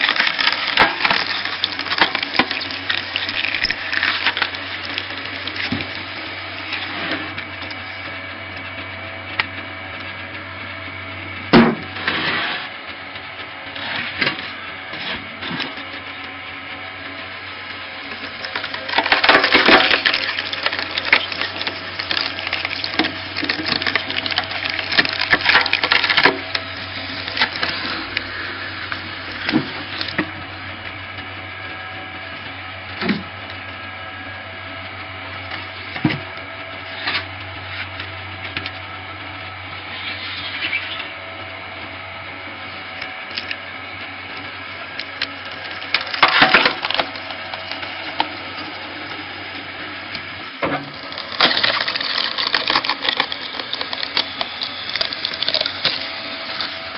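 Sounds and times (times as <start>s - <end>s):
wood cracking apart: 0.0s - 6.9s, 17.6s - 30.4s, 44.4s - 56.9s
wood crackling and splintering: 0.0s - 10.2s, 11.4s - 33.8s, 42.5s - 56.9s
log splitter humming: 0.0s - 56.9s.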